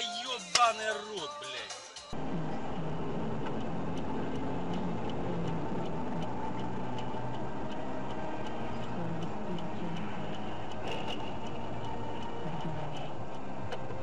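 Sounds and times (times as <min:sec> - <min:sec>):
car running noise from inside: 0:02.2 - 0:14.0
light ticking: 0:02.2 - 0:14.0.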